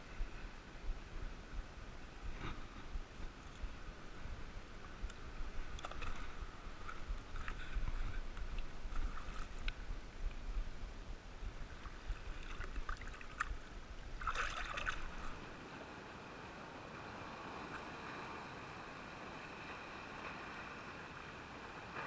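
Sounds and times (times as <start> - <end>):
seawater splashing: 5.5 - 9.9, 11.6 - 15.7.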